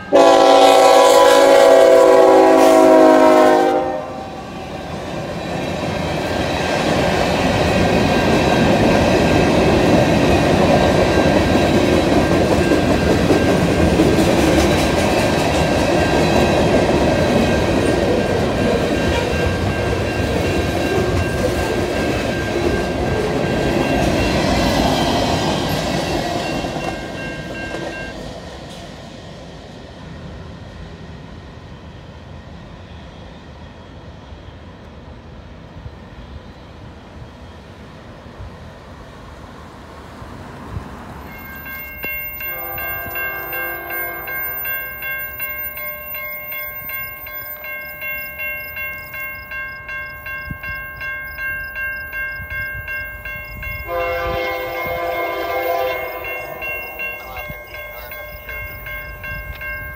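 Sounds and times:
train wheels rumbling over rails: 0:00.1 - 0:32.7
high ringing tones: 0:41.3 - 0:59.9.

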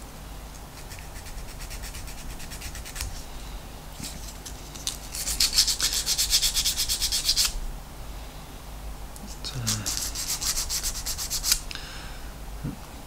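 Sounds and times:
abrasive tool rubbing plastic: 0:04.1 - 0:07.6, 0:09.7 - 0:11.6.

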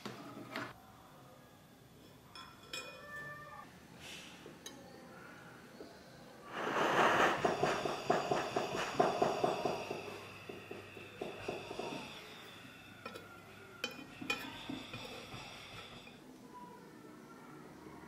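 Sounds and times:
torch flame fluttering rush: 0:06.5 - 0:09.8.

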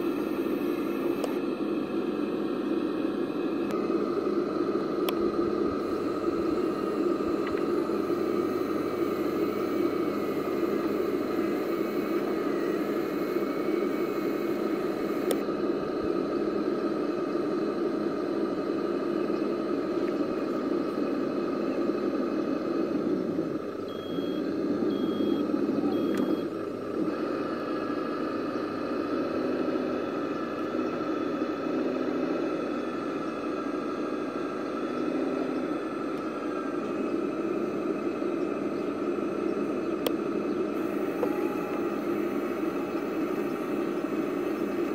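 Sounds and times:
electric winch motor whirring: 0:00.0 - 0:44.9
short high beeps: 0:23.9 - 0:26.5.

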